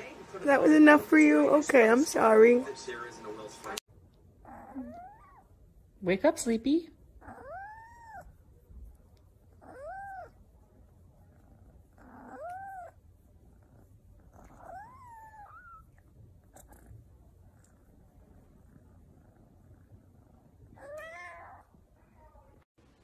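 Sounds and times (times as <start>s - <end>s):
kitten meowing: 7.2s - 8.3s, 9.6s - 10.4s, 12.0s - 13.0s, 14.4s - 15.9s, 20.8s - 21.7s.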